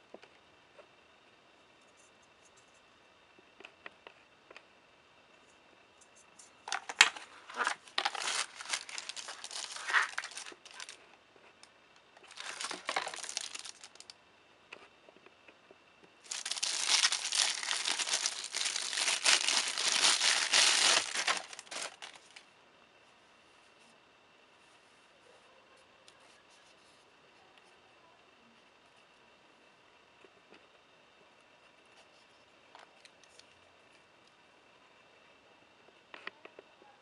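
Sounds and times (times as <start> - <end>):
plastic bag crinkling: 6.7 - 11.0, 12.2 - 14.1, 16.2 - 22.4.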